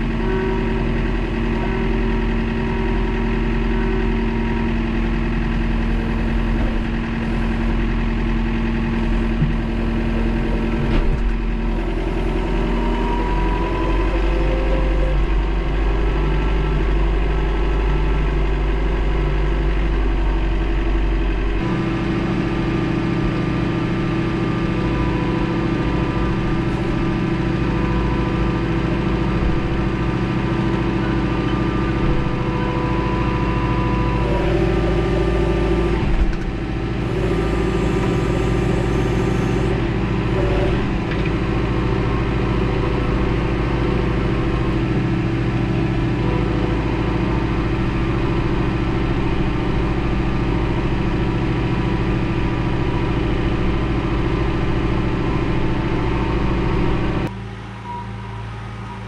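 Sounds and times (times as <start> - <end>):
tractor diesel engine running: 0.0 - 59.0
clunk: 10.8 - 11.4, 36.0 - 36.5.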